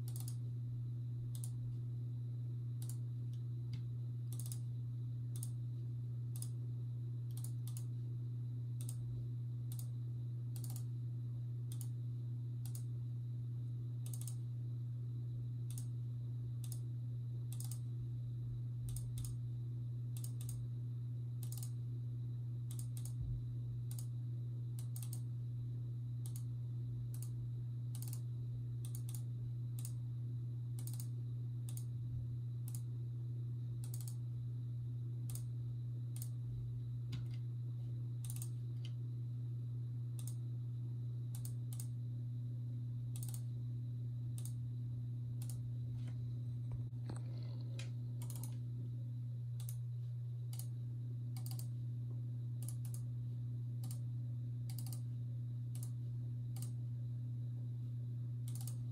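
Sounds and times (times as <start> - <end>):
computer clicking: 0.0 - 0.4, 1.3 - 1.6, 2.8 - 4.7, 5.3 - 5.6, 6.3 - 6.6, 7.3 - 8.0, 8.8 - 9.0, 9.7 - 10.9, 11.7 - 12.0, 12.6 - 12.9, 14.0 - 14.5, 15.6 - 16.0, 16.6 - 17.9, 18.9 - 19.4, 20.2 - 20.7, 21.4 - 21.8, 22.7 - 23.2, 23.9 - 24.1, 24.8 - 25.3, 26.2 - 26.5, 27.1 - 30.0, 30.8 - 32.0, 32.6 - 32.9, 33.8 - 34.2, 35.3 - 35.5, 36.1 - 36.4, 38.2 - 39.0, 40.2 - 40.4, 41.3 - 42.0, 43.1 - 43.5, 44.4 - 44.6, 45.4 - 45.6, 46.8 - 48.6, 49.6 - 49.8, 50.5 - 51.8, 52.6 - 53.1, 53.8 - 54.0, 54.7 - 55.1, 55.7 - 56.0, 56.6 - 56.8, 58.4 - 58.9
steady low hum: 0.0 - 58.9.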